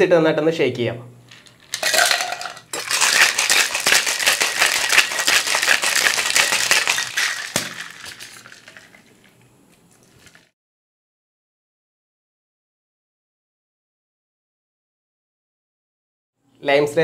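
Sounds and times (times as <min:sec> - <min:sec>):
ice rattling in cocktail shaker: 0:01.3 - 0:10.5
ice clattering into metal tin: 0:01.6 - 0:09.2, 0:10.0 - 0:10.5.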